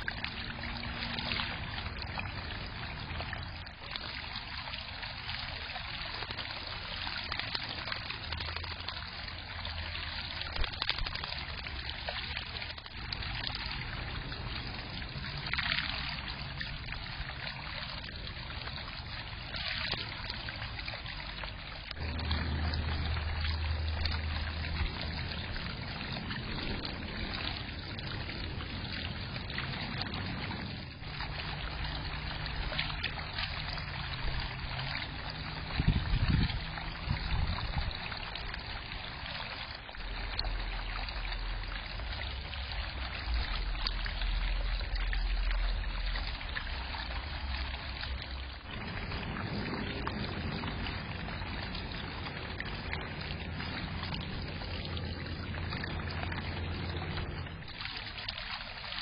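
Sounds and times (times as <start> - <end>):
fountain trickling into pool: 0.0 - 59.0
low rumble: 21.8 - 38.8, 39.8 - 58.0.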